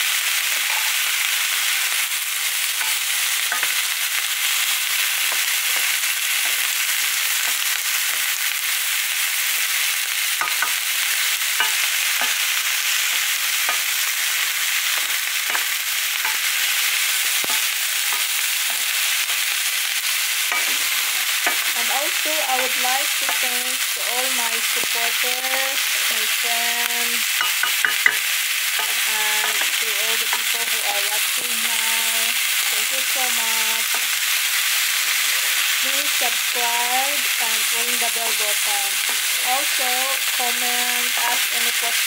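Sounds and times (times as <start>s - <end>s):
vegetables sizzling in oil: 0.0s - 42.0s.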